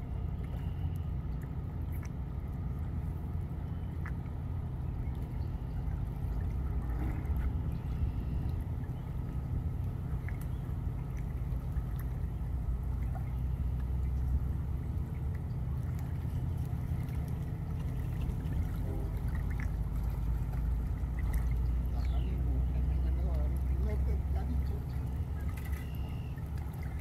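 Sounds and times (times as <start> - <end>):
river water lapping at shore: 0.0 - 27.0
steady low rumble: 0.0 - 27.0.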